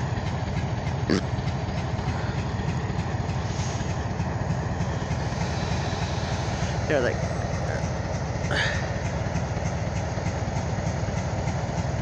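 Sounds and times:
diesel locomotive running: 0.0 - 12.0.

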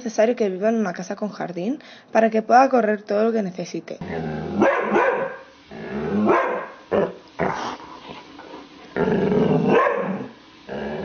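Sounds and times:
dog growling: 4.0 - 11.0
dog barking: 4.6 - 5.5, 6.3 - 7.2, 9.7 - 10.3.

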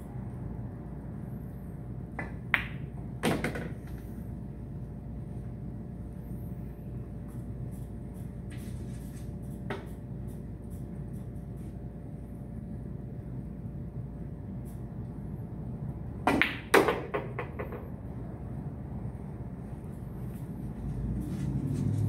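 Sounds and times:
steady background hum: 0.0 - 22.0
billiard balls clacking: 2.2 - 4.0, 16.3 - 17.9.

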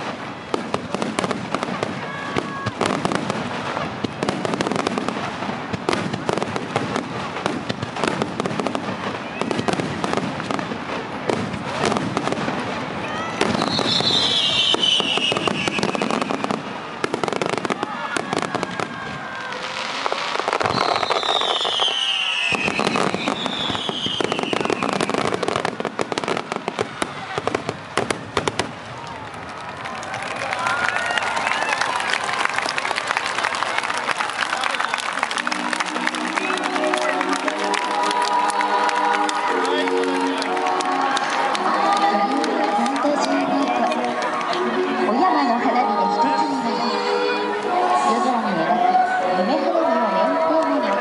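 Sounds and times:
fireworks crackling and popping: 0.0 - 48.3
fireworks whistles falling in pitch: 13.4 - 16.6, 19.6 - 26.2.

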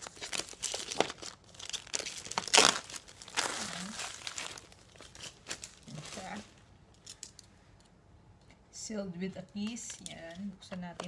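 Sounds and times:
plastic shrink wrap tearing: 0.0 - 6.6.

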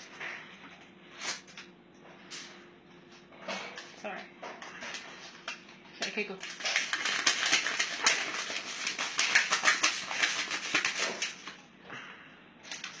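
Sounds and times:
paper crinkling and tearing: 6.4 - 11.6.

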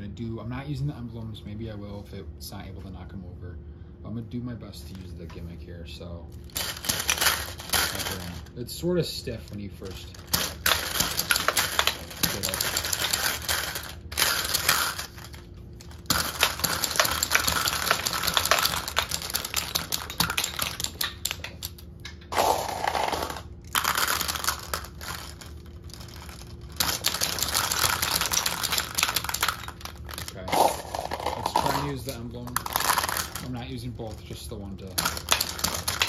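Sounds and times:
toy marble shooter firing: 6.5 - 8.4, 10.1 - 33.6, 34.9 - 36.0
marbles striking plastic targets: 6.5 - 8.5, 9.3 - 36.0.

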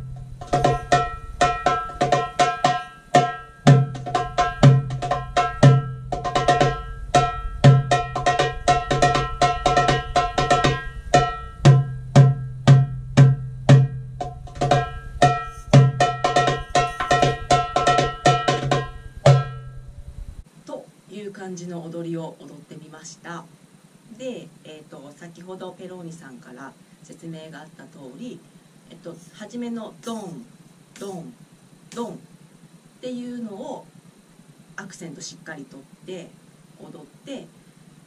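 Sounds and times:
darbuka deep doum strokes: 0.0 - 20.4
darbuka high ringing strokes: 0.0 - 20.4.

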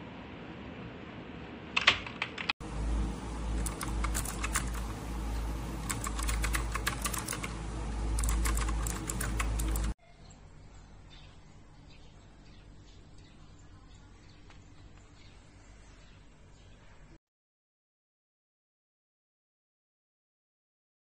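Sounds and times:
steady low hum: 0.0 - 17.2
mechanical keyboard key clicks: 5.8 - 7.5, 8.2 - 9.9.

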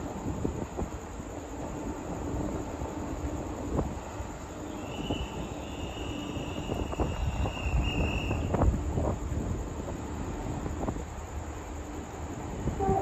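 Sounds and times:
freight train low rumble: 0.0 - 13.0
train clanks: 0.0 - 13.0
high steady wheel squeal: 4.4 - 9.0.

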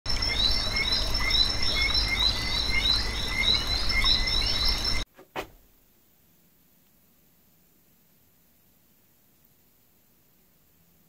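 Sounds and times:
frogs chirping: 0.1 - 5.0
high insect drone: 0.1 - 5.0.

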